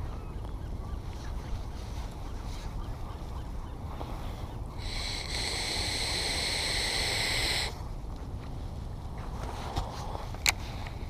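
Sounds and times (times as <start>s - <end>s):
low background rumble: 0.0s - 11.0s
fishing reel gears whirring: 4.8s - 7.7s.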